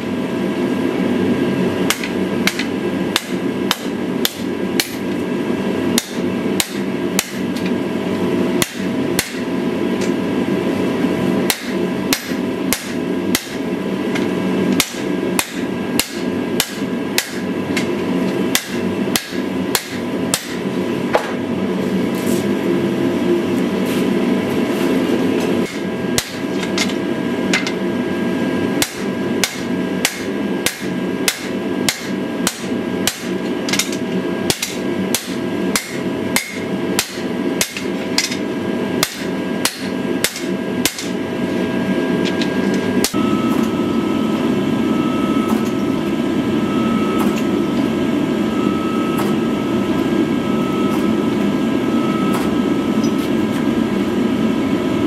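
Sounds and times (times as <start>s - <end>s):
hammer blows ringing on anvil: 11.5s - 13.6s, 14.8s - 17.5s, 18.5s - 20.6s, 28.8s - 38.4s, 39.0s - 41.2s.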